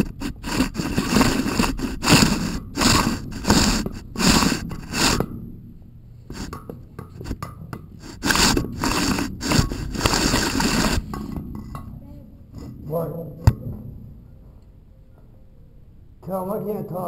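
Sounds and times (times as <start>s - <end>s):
camera scraping against well wall: 0.0s - 5.4s, 6.3s - 7.4s, 8.0s - 11.8s.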